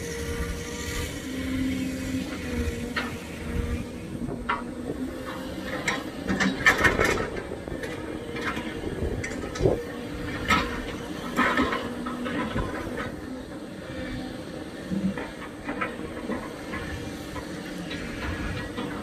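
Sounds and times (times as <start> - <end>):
excavator engine running: 0.0 - 19.0
metal clanks and knocks: 4.3 - 13.2.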